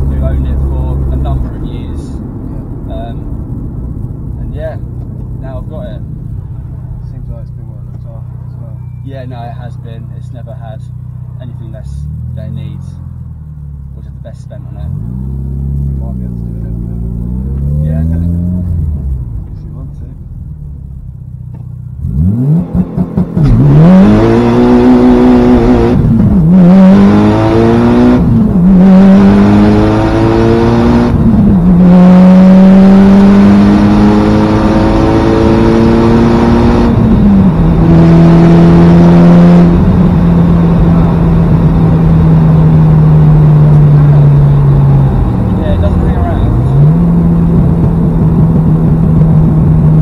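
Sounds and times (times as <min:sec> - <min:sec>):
car engine accelerating hard: 0:13.8 - 0:50.0.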